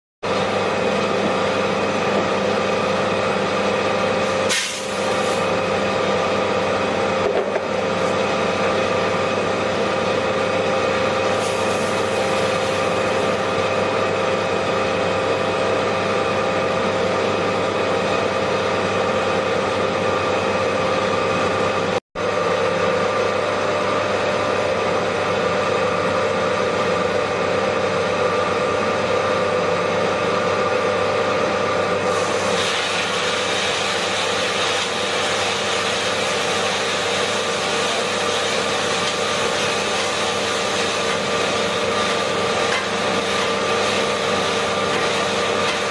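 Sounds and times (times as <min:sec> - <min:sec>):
coffee roaster motor hum: 0:00.2 - 0:45.9
hiss rush: 0:04.5 - 0:05.5, 0:11.4 - 0:13.2.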